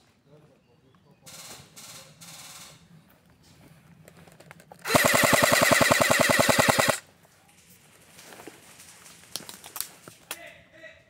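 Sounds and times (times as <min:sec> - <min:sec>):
airsoft rifle full-auto burst: 0:04.8 - 0:07.0.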